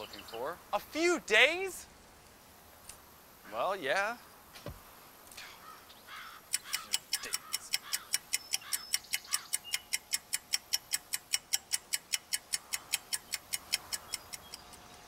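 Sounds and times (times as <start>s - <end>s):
clock ticking rapidly: 6.5s - 14.9s.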